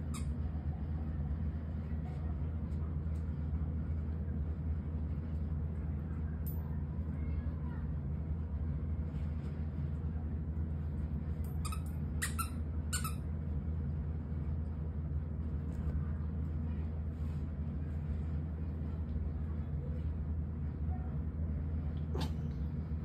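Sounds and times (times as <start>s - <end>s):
steady low hum: 0.0s - 23.0s
dog toy squeaking: 11.5s - 13.2s.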